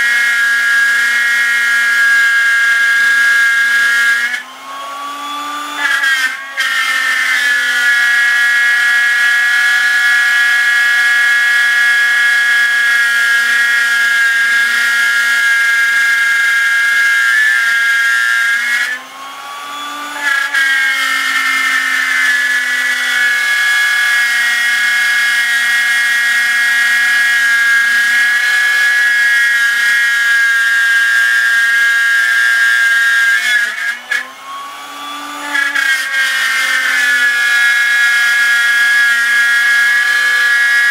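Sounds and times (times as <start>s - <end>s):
router whining cutting wood: 0.0s - 40.9s.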